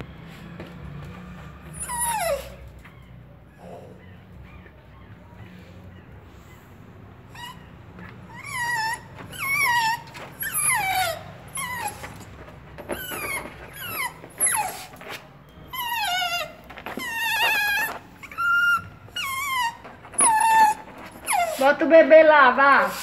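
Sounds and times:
small dog whimpering: 1.7s - 5.1s, 7.3s - 21.8s.

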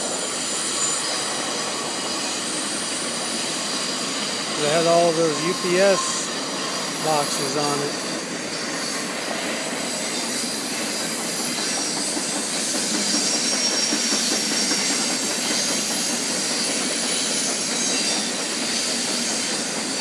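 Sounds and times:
freight train wheels on rails: 0.0s - 20.0s.

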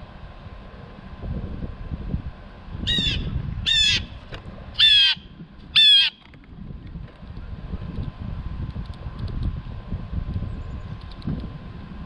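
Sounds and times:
blue jay jeer calls: 2.8s - 4.2s, 4.8s - 6.2s.

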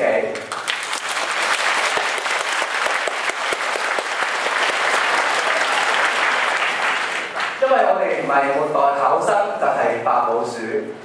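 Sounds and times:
audience applause: 0.5s - 7.6s.

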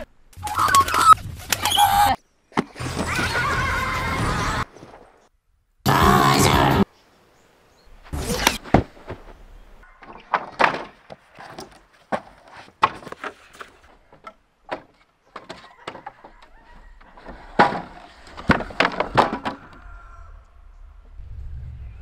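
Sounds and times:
sharp knocks and thuds: 10.0s - 16.4s
wooden bangs and clattering: 10.0s - 19.8s.

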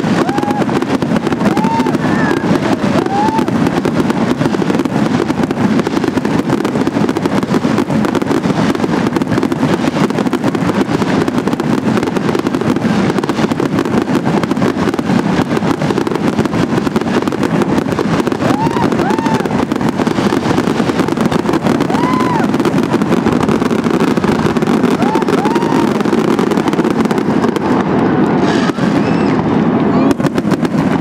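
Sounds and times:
fireworks crackling and popping: 0.0s - 31.0s.

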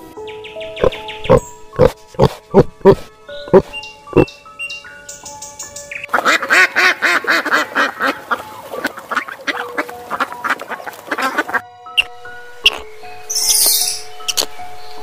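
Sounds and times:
ducks quacking: 6.1s - 12.8s.

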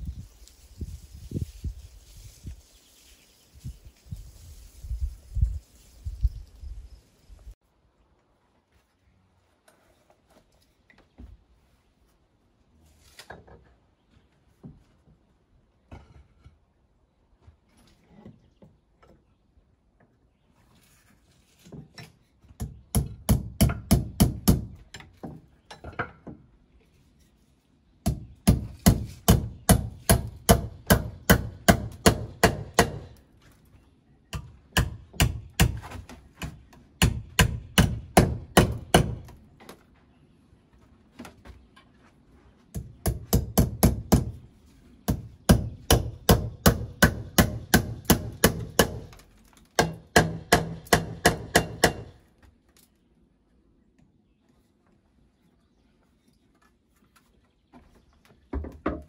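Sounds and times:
hammer strikes on iron: 28.1s - 33.1s, 37.0s - 39.3s, 43.1s - 44.3s, 45.1s - 49.1s, 49.8s - 52.2s.

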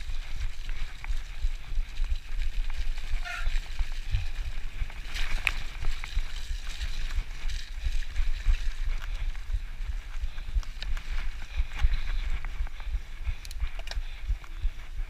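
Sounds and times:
bike tyres splashing through mud: 0.0s - 15.0s.

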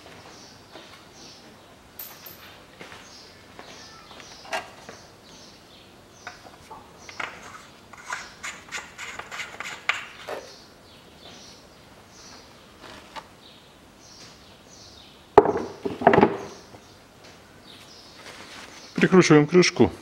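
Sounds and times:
faint bird chirps: 3.1s - 5.6s.

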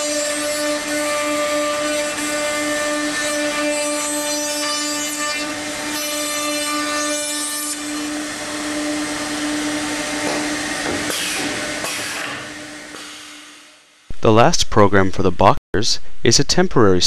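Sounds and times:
router motor whining: 0.0s - 13.7s.

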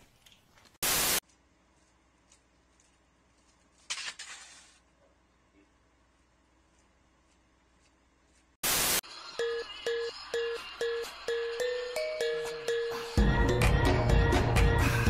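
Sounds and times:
burst of static noise: 0.8s - 1.2s, 8.6s - 9.2s.

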